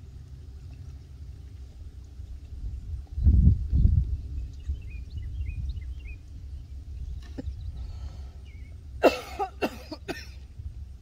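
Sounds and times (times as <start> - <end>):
wind rumble on microphone: 0.0 - 11.0
person coughing: 9.0 - 10.4.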